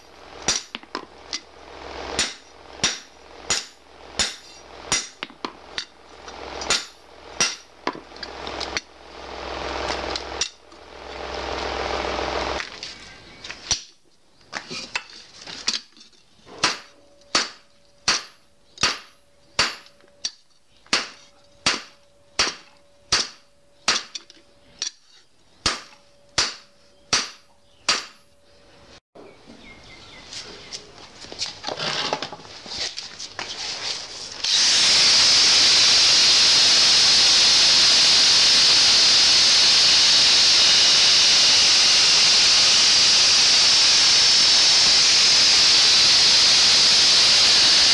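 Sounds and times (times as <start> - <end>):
angle grinder cutting steel: 0.0 - 12.6, 34.3 - 47.9
hammer clanging on anvil: 2.2 - 5.9, 6.7 - 8.0, 16.5 - 25.0, 25.6 - 28.4.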